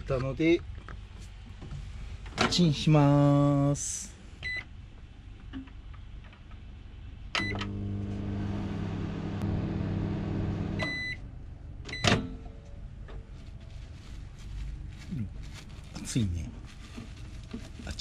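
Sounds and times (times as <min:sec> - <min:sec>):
microwave beeping: 0:07.4 - 0:11.2
microwave humming: 0:07.4 - 0:11.2.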